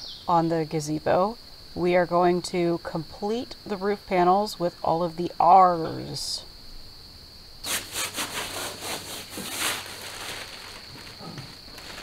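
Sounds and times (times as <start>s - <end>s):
high insect drone: 0.0s - 12.0s
plastic sheet scraping and flexing: 7.7s - 12.0s.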